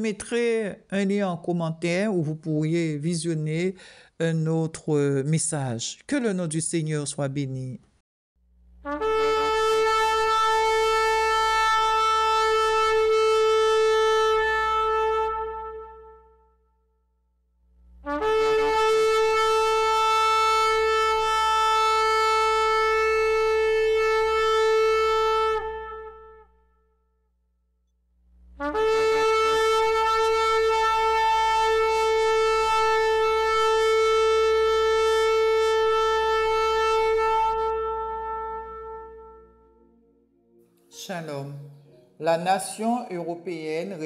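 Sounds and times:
ram's horn blasts: 0:08.8 - 0:16.5, 0:28.4 - 0:39.9.

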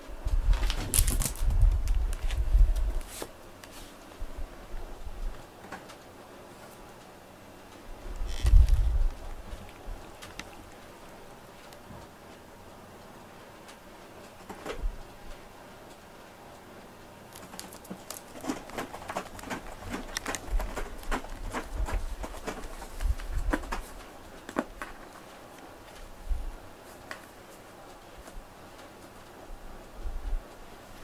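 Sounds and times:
cardboard crinkling and scraping: 0:00.5 - 0:04.0, 0:17.4 - 0:25.1.

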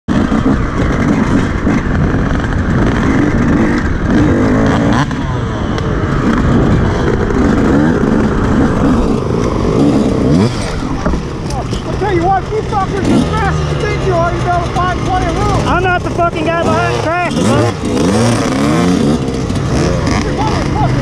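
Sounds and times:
dirt bike engine revving: 0:00.1 - 0:21.0.

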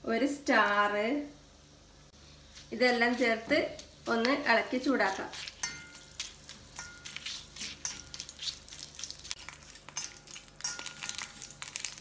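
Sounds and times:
spices sizzling in hot oil: 0:04.5 - 0:12.0
metal spoon scraping a pan: 0:05.2 - 0:11.6.

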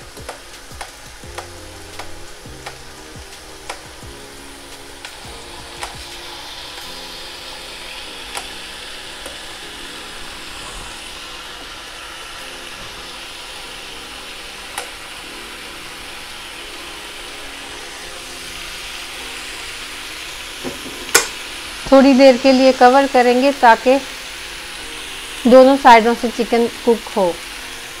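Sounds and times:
chicken sizzling on grill: 0:00.0 - 0:28.0
metal tongs clicking on grill: 0:00.2 - 0:02.8, 0:05.0 - 0:06.1, 0:08.3 - 0:08.6, 0:14.7 - 0:15.0, 0:21.0 - 0:21.4.

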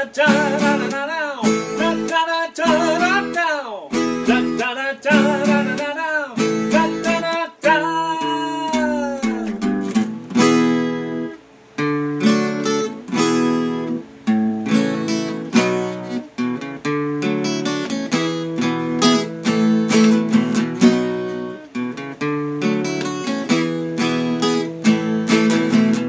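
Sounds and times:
man singing: 0:00.0 - 0:09.9
acoustic guitar strumming: 0:00.0 - 0:26.0.

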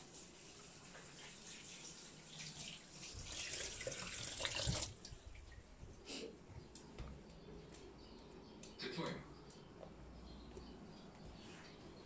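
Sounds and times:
water running into sink: 0:00.0 - 0:05.2.

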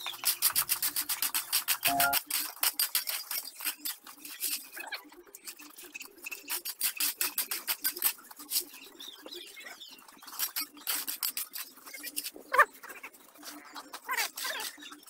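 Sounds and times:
shovel scraping wet concrete: 0:00.5 - 0:03.0.

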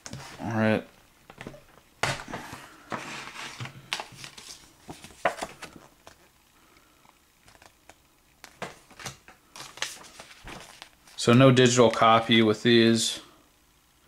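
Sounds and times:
paper rustling: 0:02.3 - 0:06.3, 0:08.4 - 0:12.1.

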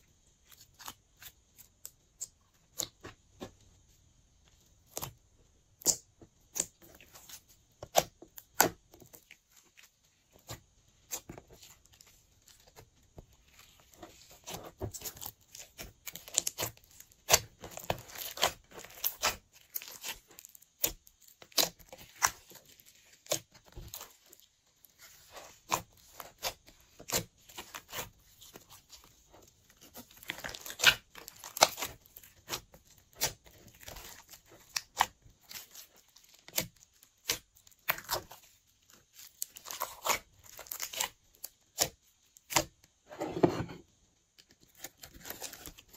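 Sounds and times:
slime popping and crackling: 0:13.6 - 0:29.0, 0:29.7 - 0:42.8.

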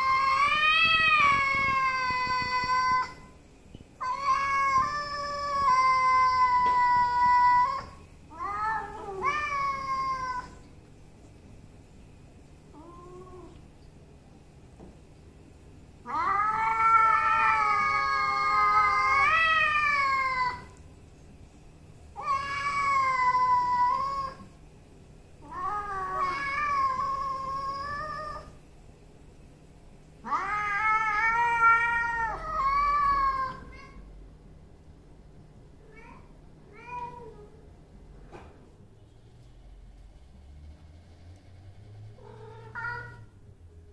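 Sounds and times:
cat meow: 0:00.0 - 0:03.4, 0:04.0 - 0:10.7, 0:16.0 - 0:20.8, 0:22.2 - 0:24.5, 0:25.4 - 0:28.6, 0:30.2 - 0:34.0, 0:35.8 - 0:37.6, 0:42.2 - 0:43.4
cat yowling: 0:00.0 - 0:03.4, 0:04.0 - 0:10.6, 0:16.0 - 0:20.8, 0:22.2 - 0:24.5, 0:25.4 - 0:28.6, 0:30.2 - 0:34.0, 0:42.2 - 0:43.3.

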